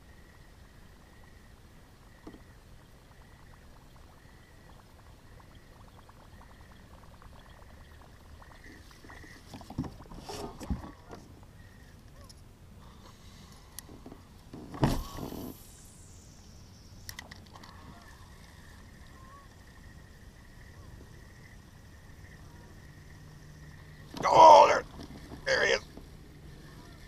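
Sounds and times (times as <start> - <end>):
water lapping against hull: 3.2 - 11.8.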